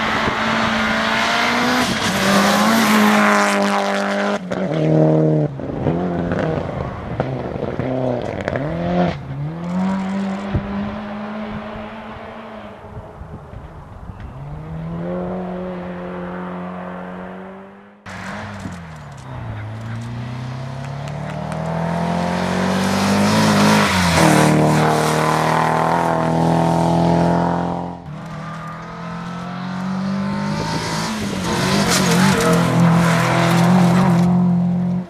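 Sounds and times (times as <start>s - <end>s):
car accelerating through gears: 19.3s - 35.0s
rally car engine revving past: 19.4s - 35.0s.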